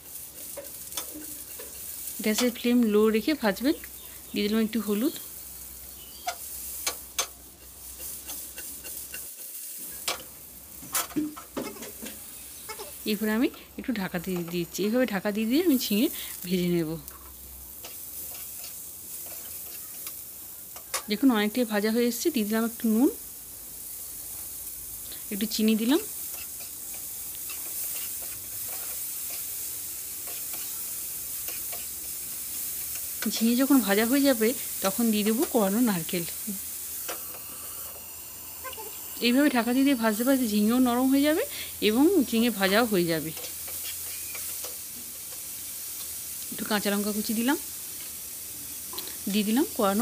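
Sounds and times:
food sizzling in oil: 0:00.0 - 0:50.0
spatula clicking on pan: 0:00.4 - 0:02.6, 0:06.2 - 0:10.3, 0:17.8 - 0:21.1, 0:30.2 - 0:33.6, 0:43.3 - 0:46.2.

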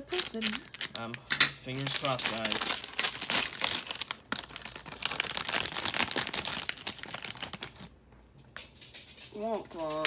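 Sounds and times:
foil bag crinkling: 0:00.0 - 0:07.9.

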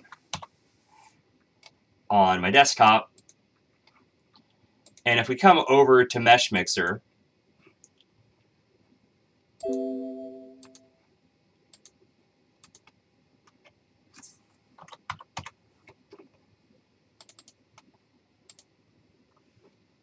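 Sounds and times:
computer alert chime: 0:09.6 - 0:10.8.

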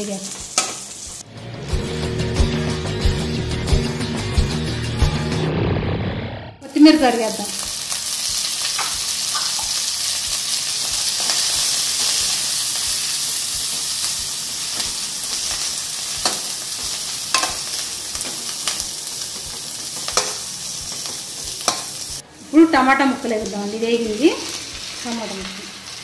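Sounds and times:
herbs sizzling in hot oil: 0:00.0 - 0:01.2, 0:06.7 - 0:26.0.

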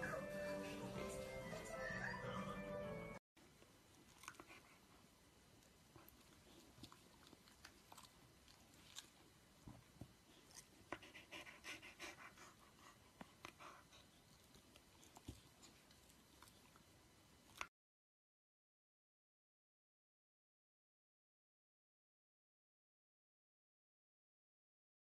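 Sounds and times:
faint dog breathing: 0:10.2 - 0:15.8.

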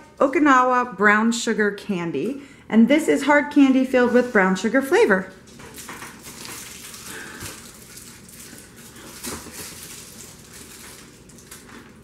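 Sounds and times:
candy wrappers crinkling: 0:05.3 - 0:12.0.

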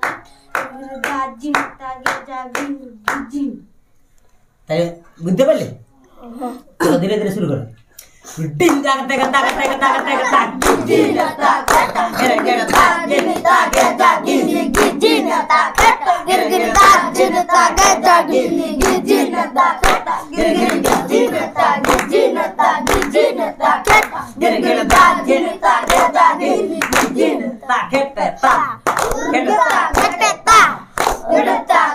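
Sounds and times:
hands clapping the beat: 0:00.0 - 0:03.4, 0:08.6 - 0:27.4, 0:28.4 - 0:31.8
boys chanting in chorus: 0:09.0 - 0:31.9.

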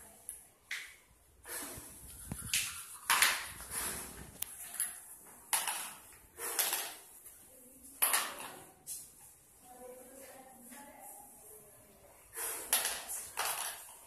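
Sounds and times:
plastic balls clattering: 0:04.6 - 0:07.1, 0:08.0 - 0:08.7, 0:12.5 - 0:14.0.

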